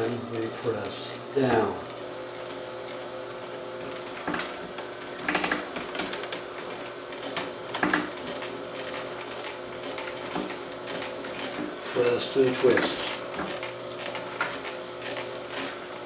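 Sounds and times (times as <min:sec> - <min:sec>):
juicer motor humming: 0:00.0 - 0:16.0.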